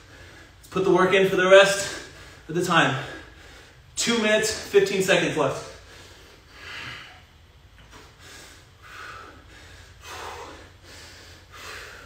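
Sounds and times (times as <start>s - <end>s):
man breathing hard: 0.0s - 0.7s, 1.8s - 4.0s, 5.7s - 12.0s.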